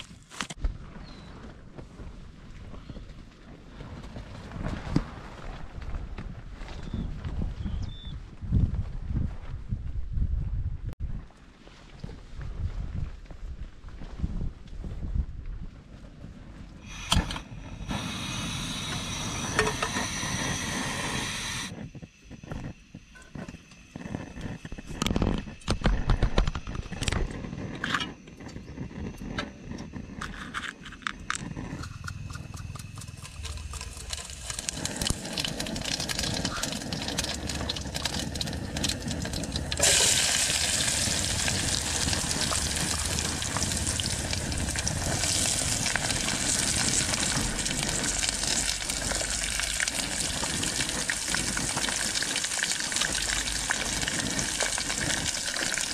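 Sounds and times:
gas burner hissing: 16.8s - 55.9s
vegetables sizzling in pot: 16.9s - 21.7s, 32.6s - 55.9s.

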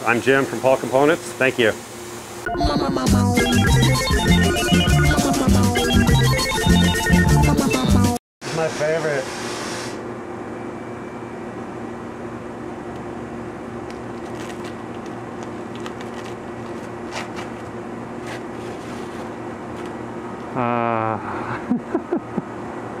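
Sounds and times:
electrical hum: 0.0s - 23.0s
film peeling scratching: 13.9s - 20.0s
person vocal sound: 20.5s - 21.6s.

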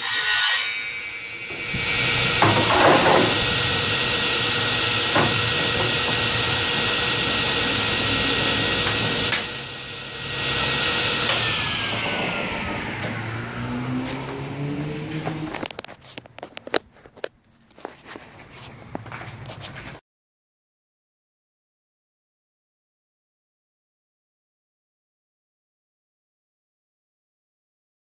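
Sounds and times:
board being ripped by saw: 0.0s - 13.4s
table saw running: 0.0s - 15.9s.

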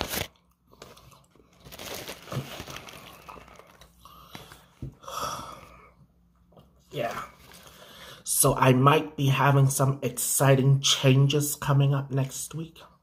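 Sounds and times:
foil wrapper crinkling: 0.0s - 4.0s.

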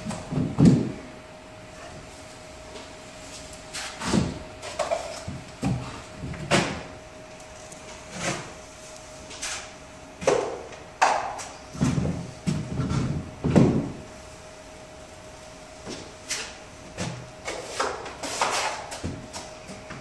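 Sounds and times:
faint steady hum: 0.0s - 20.0s
taping knife scraping compound: 17.4s - 19.5s.

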